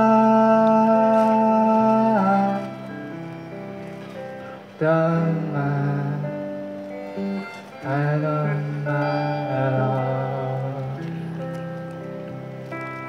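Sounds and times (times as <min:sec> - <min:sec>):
guitar chords: 0:00.0 - 0:13.0
harmonica solo: 0:06.9 - 0:08.1.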